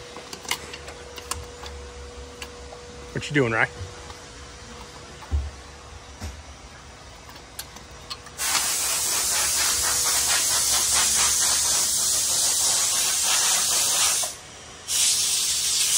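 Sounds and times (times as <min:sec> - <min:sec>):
loud steady hiss: 0:08.4 - 0:15.9.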